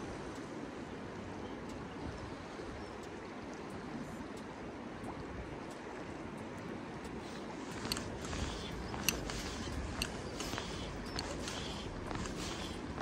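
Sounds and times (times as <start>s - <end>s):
faint ticks: 0.0s - 13.0s
flowing river water: 0.0s - 13.0s.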